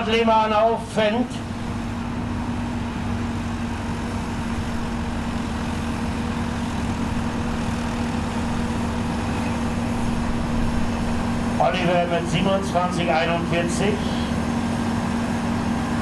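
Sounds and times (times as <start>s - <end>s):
tractor diesel engine running hard: 0.0s - 16.0s.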